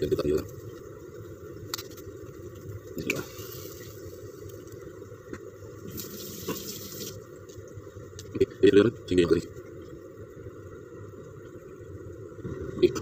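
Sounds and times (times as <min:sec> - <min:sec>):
egg frying: 0:00.0 - 0:08.4
flatbread sizzling in a pan: 0:03.0 - 0:04.7, 0:05.8 - 0:07.3.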